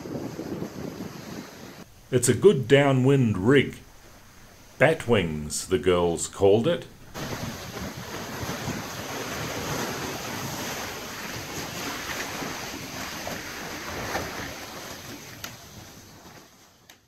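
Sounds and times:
wind buffeting microphone: 0.0 - 1.8
wind and sea rushing: 0.0 - 6.0, 6.9 - 16.9.

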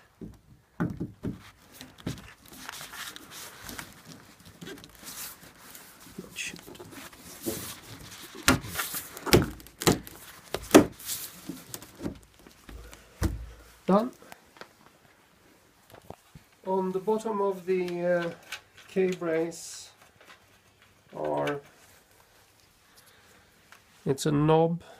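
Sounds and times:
loud knocks on wooden panels: 0.2 - 1.4, 9.3 - 11.0, 13.2 - 13.5
wooden panels scraping: 1.1 - 13.7.

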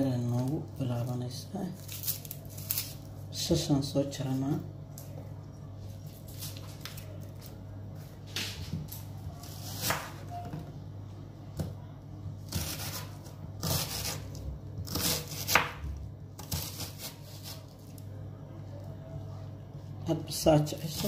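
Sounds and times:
steady low hum: 0.0 - 21.0
knife slicing through onion: 9.4 - 10.2, 12.4 - 15.8, 16.4 - 17.7.

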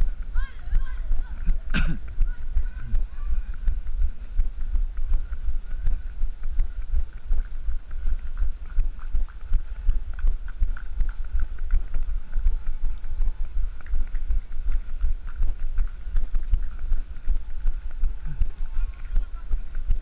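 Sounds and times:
wind rumbling on microphone: 0.0 - 20.0.

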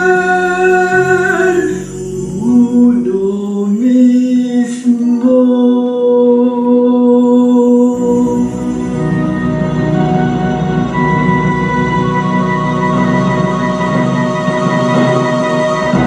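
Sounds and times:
person singing long notes: 0.0 - 9.3
quiet musical backing: 0.0 - 16.0.

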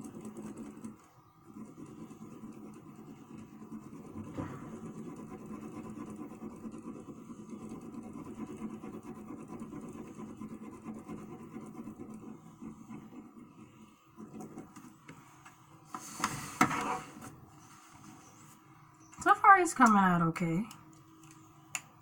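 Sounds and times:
pencil scratching on paper: 0.0 - 14.7.

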